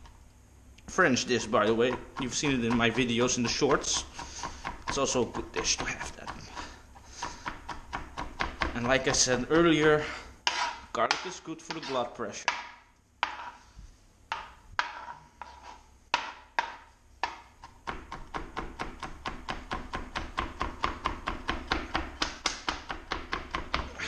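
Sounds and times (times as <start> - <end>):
knife chopping on cutting board: 1.5 - 9.7, 10.5 - 13.6, 14.3 - 23.9.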